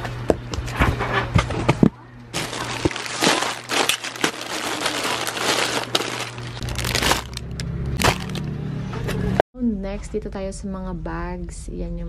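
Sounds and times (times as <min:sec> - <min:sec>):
plastic packaging crinkling: 0:02.4 - 0:08.5.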